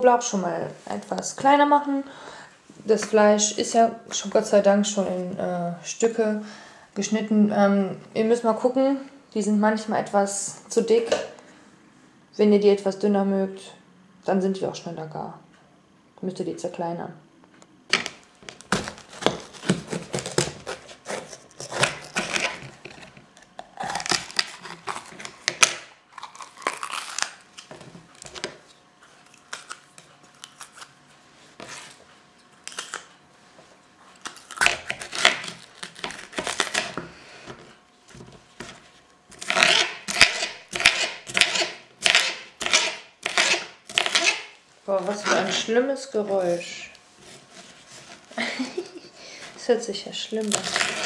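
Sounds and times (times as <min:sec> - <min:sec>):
knife chopping: 0:17.9 - 0:23.1, 0:38.6 - 0:45.7
knife cutting pepper on board: 0:18.8 - 0:23.0, 0:39.4 - 0:45.7.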